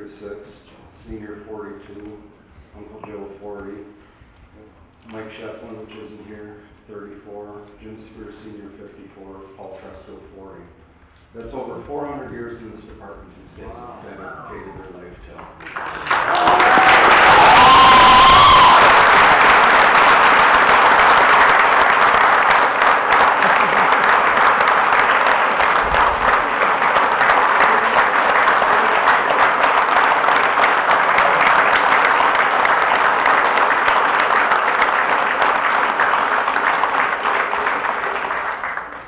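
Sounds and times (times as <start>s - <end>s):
crowd applauding: 15.6s - 39.0s.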